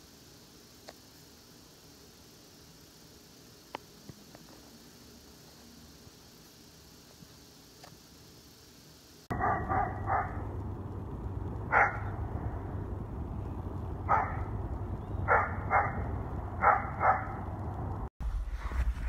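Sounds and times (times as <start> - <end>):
dog barking: 9.3 - 10.4, 11.7 - 12.1, 14.1 - 14.5, 15.3 - 17.4
low rumble: 9.3 - 19.0.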